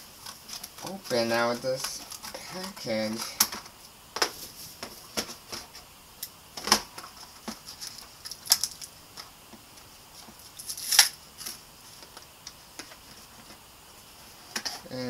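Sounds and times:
packaging crinkling and clicking: 6.6 - 9.3.

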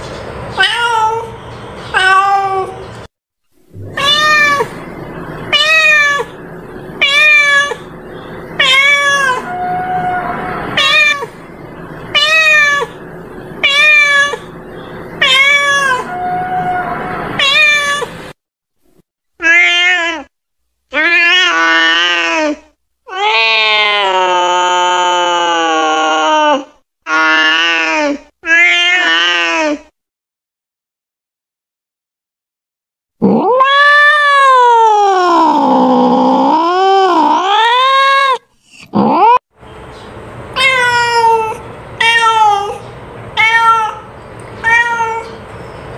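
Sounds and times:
cats meowing: 0.6 - 2.8, 3.8 - 18.3, 33.2 - 39.4, 40.6 - 45.4
cat yowling: 3.8 - 4.8, 5.5 - 6.4, 7.0 - 7.9, 8.6 - 11.4, 12.1 - 13.0, 13.6 - 14.6, 15.2 - 18.2, 21.0 - 29.8, 33.2 - 39.4, 40.6 - 42.8, 43.4 - 45.4.

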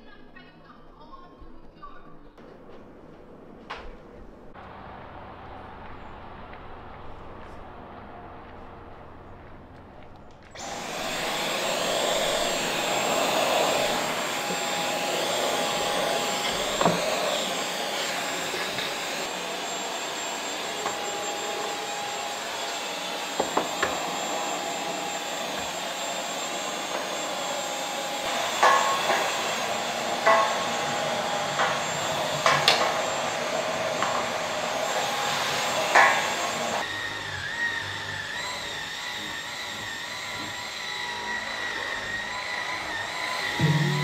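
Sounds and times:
vacuum cleaner running: 10.4 - 44.0.

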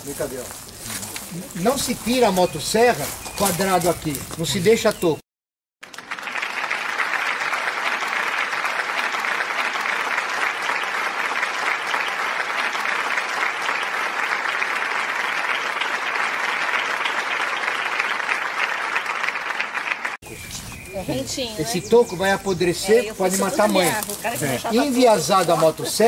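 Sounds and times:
crowd applause: 5.8 - 20.2.

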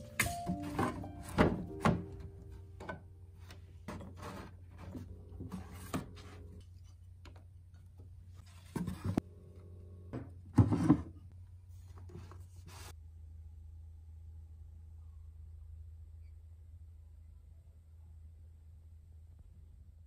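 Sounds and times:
books knocking and scraping on shelf: 0.0 - 6.9, 8.4 - 9.2, 10.1 - 11.3
low steady hum: 0.0 - 20.0.

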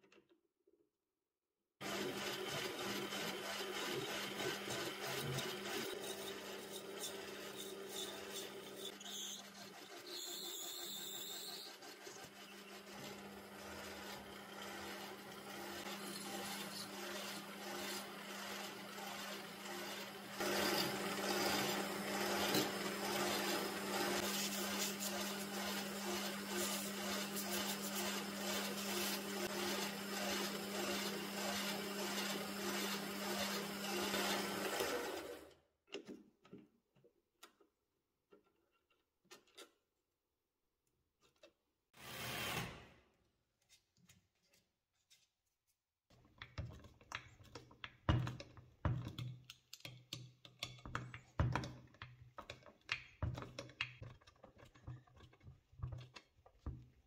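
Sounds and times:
metal lathe humming: 1.9 - 35.1
sandpaper rubbing metal: 7.0 - 12.8, 24.2 - 29.3.

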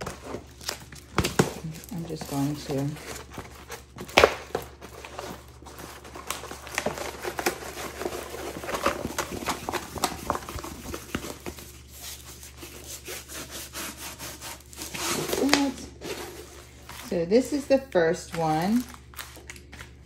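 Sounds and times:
canvas and paper rustling: 0.0 - 19.9.

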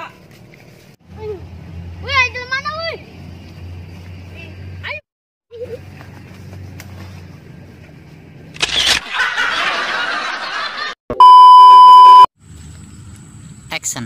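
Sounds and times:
censor bleep tone: 11.1 - 12.3.

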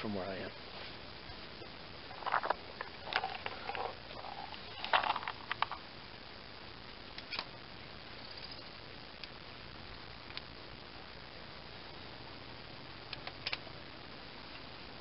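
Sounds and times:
small metal parts clicking and rattling: 2.1 - 5.8.

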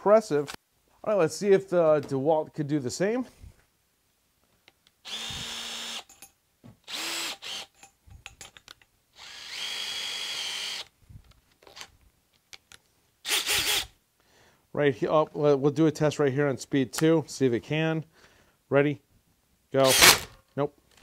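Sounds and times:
cordless drill spinning up: 5.0 - 6.2, 6.8 - 7.9, 9.2 - 10.9, 13.2 - 14.0, 19.8 - 20.4
drill chuck turning: 5.0 - 6.3, 6.9 - 10.9, 13.2 - 13.9, 19.8 - 21.0.

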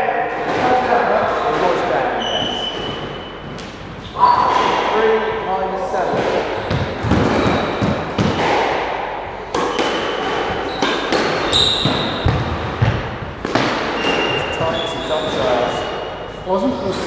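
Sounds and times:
squash ball and racket hits: 0.3 - 16.3
sneaker squeaks on wooden floor: 2.1 - 4.9, 6.6 - 8.2, 9.6 - 13.0, 13.7 - 16.5.

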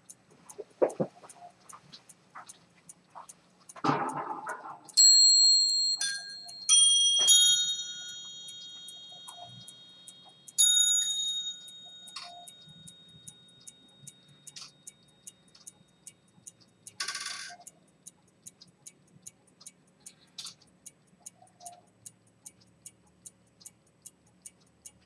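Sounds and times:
pocket watch ticking: 0.0 - 25.0
bell-like chimes: 5.0 - 15.2.

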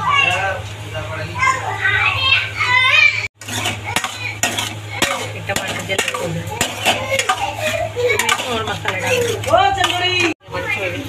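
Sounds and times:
metal spoon scraping a pan: 3.4 - 10.8.

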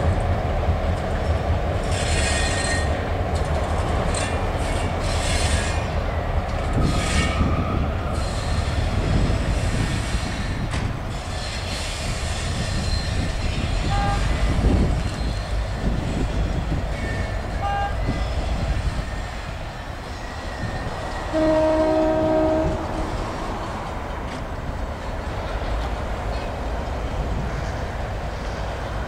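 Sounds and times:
diesel locomotives rumbling: 0.0 - 29.0
locomotive horn: 13.8 - 14.7, 17.1 - 18.4, 21.2 - 23.4.

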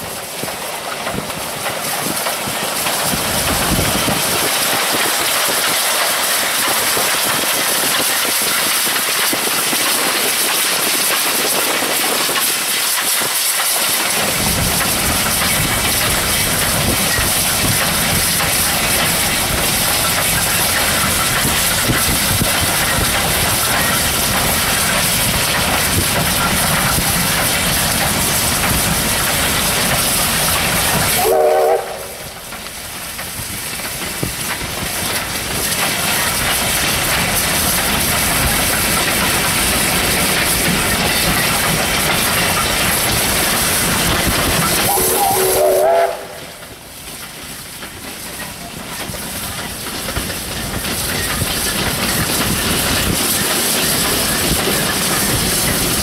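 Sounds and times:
wind and road noise: 0.0 - 31.2
steam locomotive running: 0.0 - 56.0.

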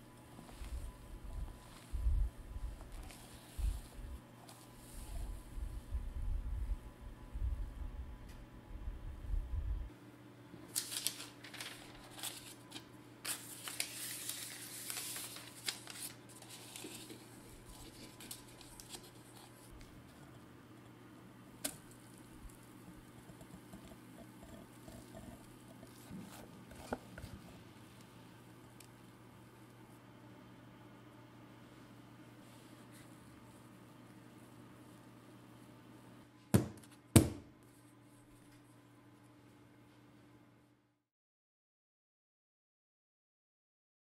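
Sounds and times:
parchment paper crinkling: 2.7 - 5.3, 10.7 - 20.3.

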